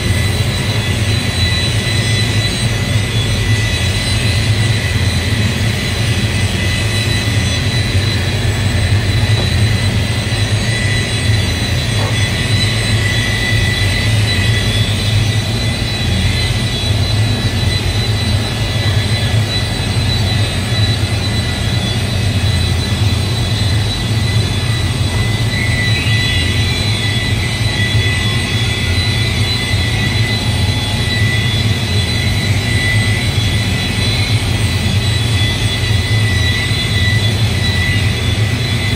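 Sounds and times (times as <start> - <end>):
electric polisher humming and whining: 0.0 - 15.4.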